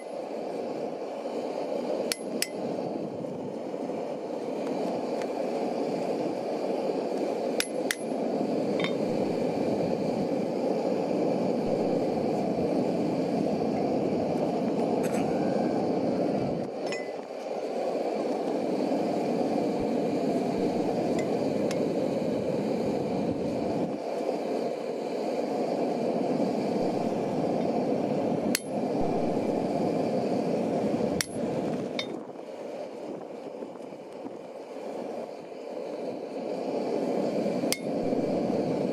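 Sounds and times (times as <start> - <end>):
steady rushing noise: 0.0 - 38.9.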